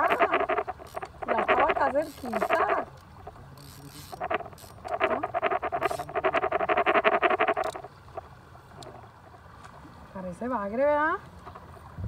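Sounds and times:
frog pulsed trill: 0.0s - 2.8s.

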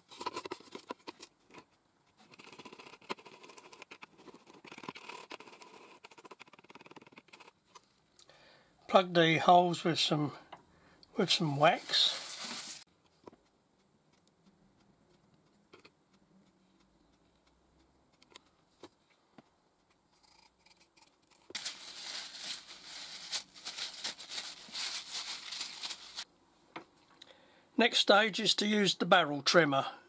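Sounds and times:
tube scratchy rasping in wood: 2.2s - 7.6s, 11.8s - 12.8s.

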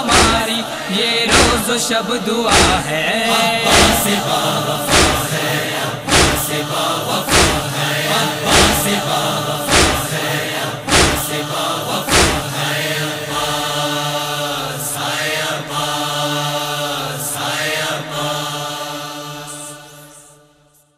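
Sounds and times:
heavy thumps: 0.0s - 0.5s, 1.3s - 1.7s, 2.5s - 2.9s, 3.7s - 4.1s, 4.9s - 5.4s, 6.1s - 6.6s, 7.3s - 7.8s, 8.5s - 9.0s, 9.7s - 10.2s, 10.9s - 11.4s, 12.1s - 12.6s
voices chanting a drone: 0.0s - 20.9s.

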